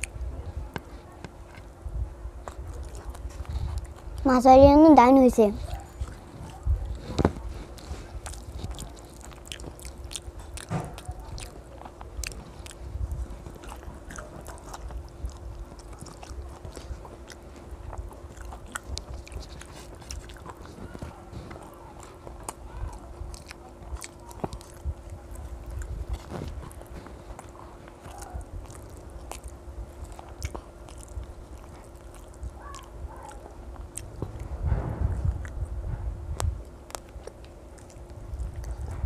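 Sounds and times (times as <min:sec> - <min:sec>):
faint steady hum: 0:00.0 - 0:39.0
sticky chewing mouth sounds: 0:00.0 - 0:39.0
fingers squishing rice: 0:05.6 - 0:34.2.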